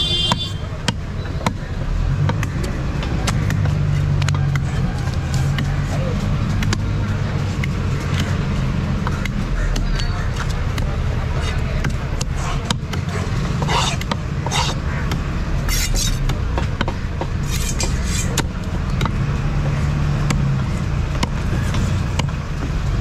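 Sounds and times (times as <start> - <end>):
low traffic rumble: 0.0 - 23.0
knife tapping on wooden block: 6.6 - 6.9, 11.8 - 19.2
cleaver scraping fish scales: 13.6 - 14.8, 15.7 - 16.2, 17.4 - 18.4.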